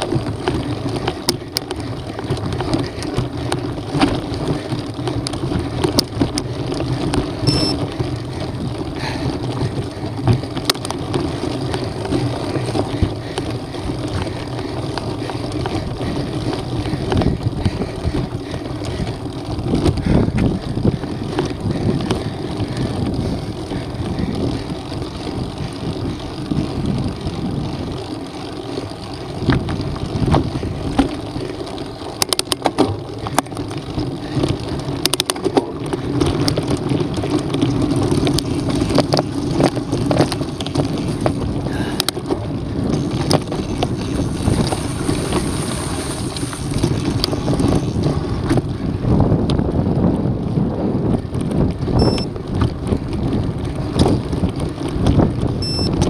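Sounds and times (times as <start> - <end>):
bike clicks and knocks: 0.0 - 56.0
bike tyres rumbling on stones: 0.0 - 56.0
wind on microphone: 11.6 - 28.0, 34.2 - 56.0.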